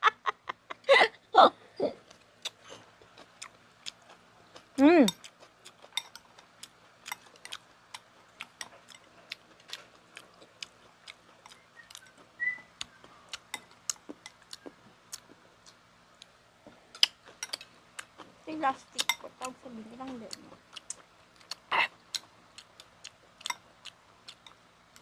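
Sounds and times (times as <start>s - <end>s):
chewing clicks and smacks: 2.1s - 16.3s, 20.3s - 25.0s.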